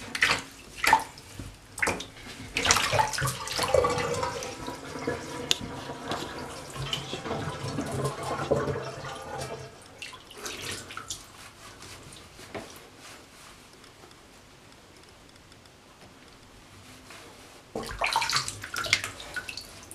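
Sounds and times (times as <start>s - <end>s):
water splashing in a bathtub: 0.0s - 12.8s, 17.8s - 19.9s.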